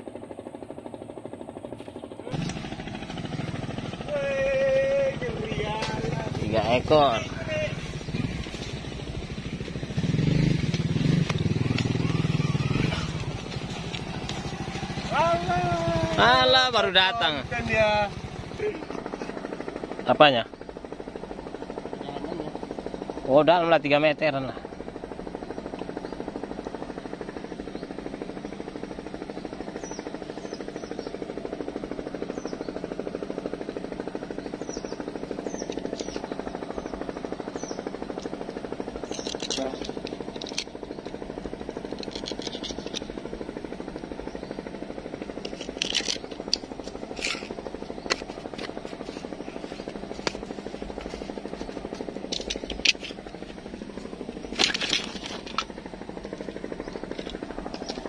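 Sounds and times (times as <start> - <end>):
motor engine droning: 0.0 - 58.0
plastic tackle clicking and scraping: 39.1 - 41.2, 41.9 - 43.1, 45.4 - 53.6, 54.5 - 56.5.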